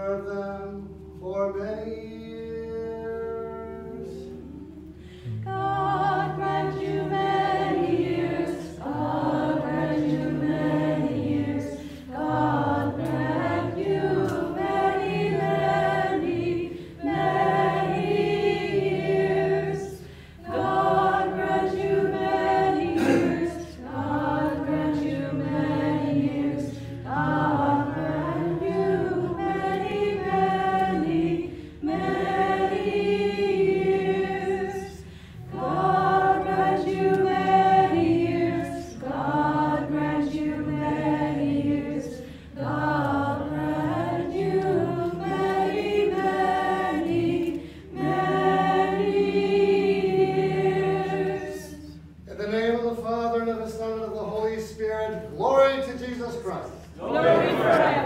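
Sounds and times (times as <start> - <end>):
choir singing a hymn: 2.2 - 55.3, 56.8 - 58.0.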